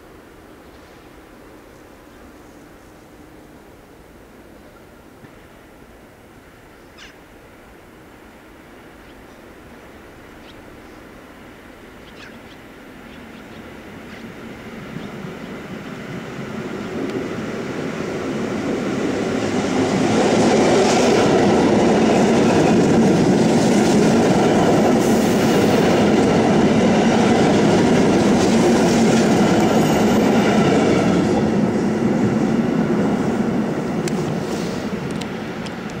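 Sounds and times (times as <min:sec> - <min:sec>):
train wheels rumbling on rails: 0:13.0 - 0:36.0.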